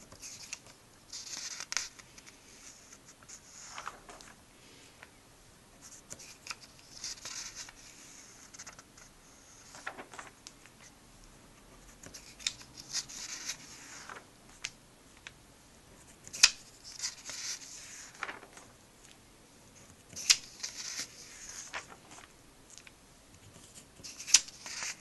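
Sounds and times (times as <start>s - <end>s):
comic book pages turning: 0.1s - 4.4s, 6.1s - 10.8s, 16.3s - 19.2s, 20.1s - 22.9s.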